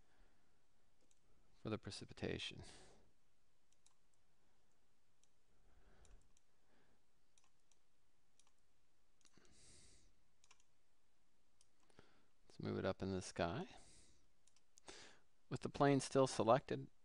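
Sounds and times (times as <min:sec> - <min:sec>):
faint computer mouse clicks: 0:10.4 - 0:10.7.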